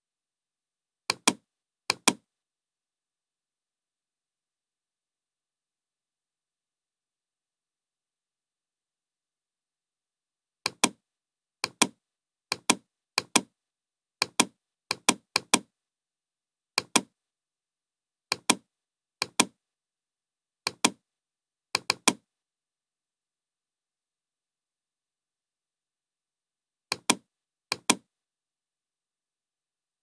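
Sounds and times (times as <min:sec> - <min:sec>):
computer mouse clicks: 0:01.1 - 0:02.2, 0:10.7 - 0:11.0, 0:11.6 - 0:13.5, 0:14.2 - 0:15.7, 0:16.8 - 0:17.1, 0:18.3 - 0:18.6, 0:19.2 - 0:19.6, 0:20.7 - 0:21.0, 0:21.8 - 0:22.2, 0:26.9 - 0:28.1.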